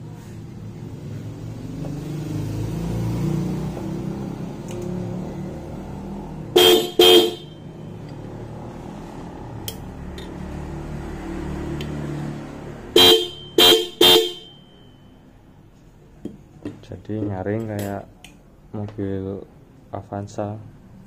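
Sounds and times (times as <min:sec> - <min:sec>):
shrill motorcycle horn blasts: 0:06.5 - 0:07.8, 0:12.9 - 0:15.1.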